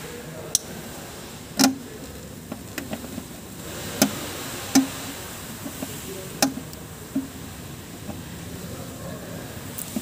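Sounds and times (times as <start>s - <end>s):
plastic conduit clicks and knocks: 1.6s - 1.8s, 2.5s - 3.3s, 4.0s - 4.9s, 5.6s - 7.4s.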